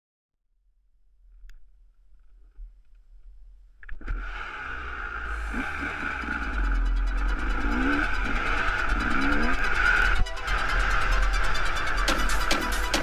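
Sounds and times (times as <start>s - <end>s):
dirt bike engine revving: 4.0s - 13.0s.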